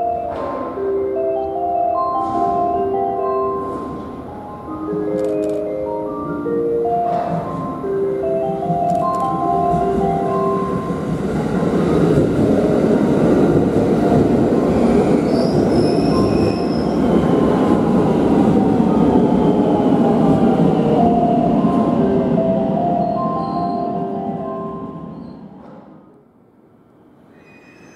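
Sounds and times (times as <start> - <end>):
marimba music: 0.0 - 11.8
train whine: 0.0 - 27.9
train wheels rumbling: 7.0 - 26.2
high squeal: 15.1 - 17.1, 27.2 - 27.9.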